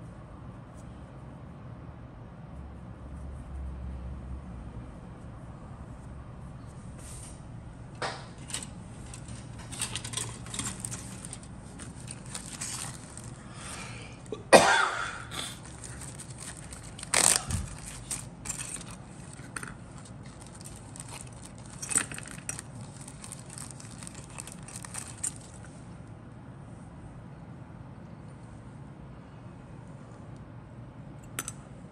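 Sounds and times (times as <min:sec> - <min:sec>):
plastic bag crinkling: 0:08.5 - 0:14.3, 0:15.4 - 0:25.7.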